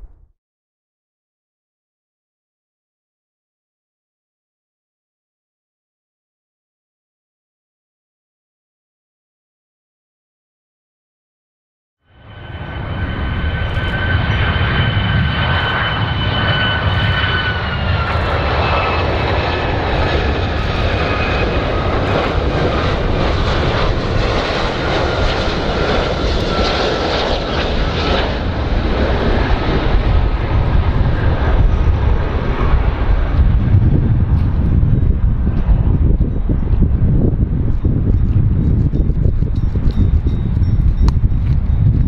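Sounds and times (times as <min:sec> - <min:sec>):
jet engines roaring: 0:12.1 - 0:42.0.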